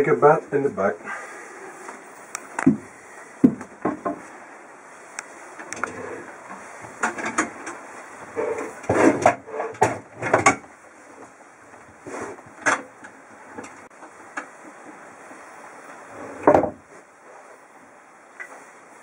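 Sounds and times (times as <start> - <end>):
heavy thump: 2.6 - 4.2
wooden table knocks and scrapes: 16.4 - 16.8.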